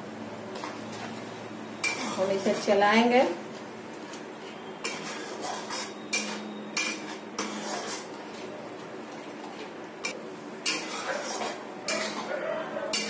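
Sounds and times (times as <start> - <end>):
metal spatula scraping a pot: 1.8 - 2.7, 4.8 - 8.5, 10.6 - 12.3.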